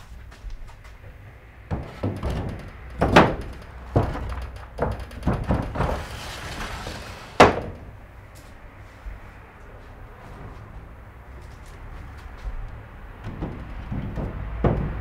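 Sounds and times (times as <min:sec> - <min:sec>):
wooden frames knocking: 0:01.0 - 0:08.0, 0:12.5 - 0:15.0
panel sliding rustle: 0:05.1 - 0:07.8.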